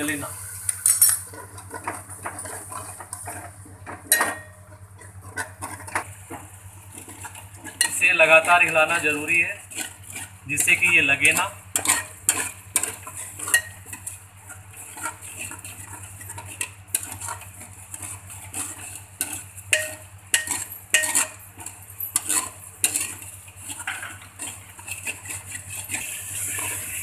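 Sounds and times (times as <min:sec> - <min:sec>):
paste sizzling: 0:06.2 - 0:27.0
metal spoon scraping metal pot: 0:06.9 - 0:27.0.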